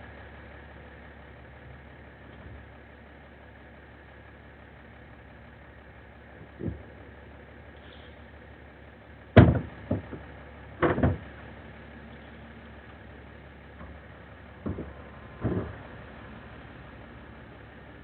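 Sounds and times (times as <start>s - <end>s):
plastic bin knocks and thumps: 9.4s - 10.2s, 10.8s - 11.2s.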